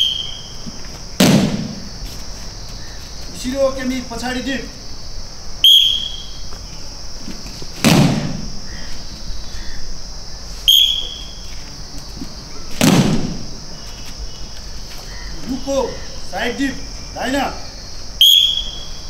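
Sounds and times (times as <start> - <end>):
short whistle blast: 0.0 - 0.6, 5.6 - 6.4, 10.7 - 11.4, 18.2 - 19.0
high insect buzz: 0.0 - 19.0
bodies slapping mats: 0.6 - 2.8, 7.2 - 9.1, 11.9 - 14.2.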